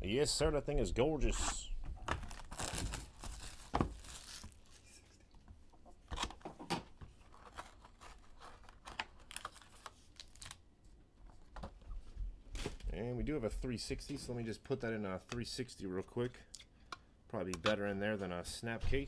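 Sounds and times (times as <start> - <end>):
plastic wrapper tearing and crinkling: 2.1 - 5.0, 7.3 - 10.6.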